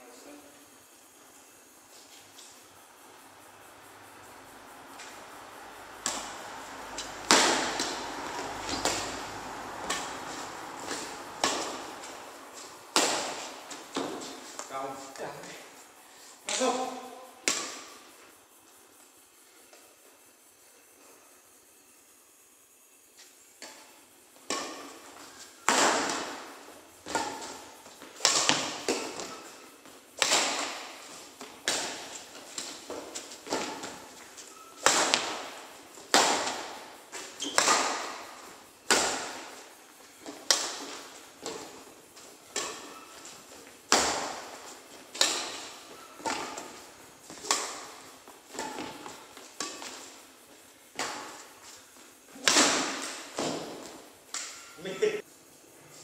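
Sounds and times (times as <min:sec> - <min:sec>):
rackets hitting shuttlecock: 0:05.9 - 0:14.6, 0:17.4 - 0:18.1, 0:24.5 - 0:50.2, 0:52.4 - 0:54.8.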